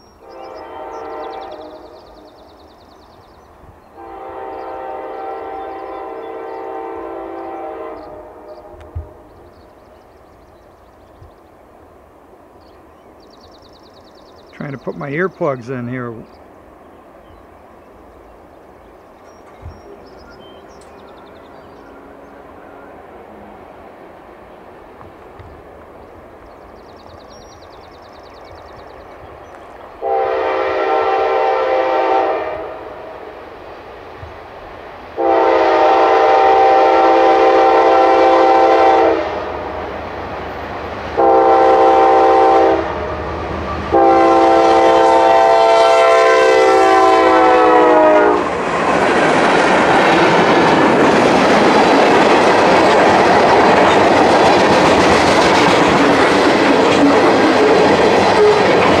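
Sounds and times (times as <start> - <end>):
train rumbling past: 0.0 - 59.0
locomotive air horn blasts: 0.2 - 2.0, 4.0 - 9.3, 30.0 - 33.3, 35.2 - 39.7, 41.2 - 43.1, 43.9 - 48.5
wheels clicking over rail joints: 48.6 - 59.0.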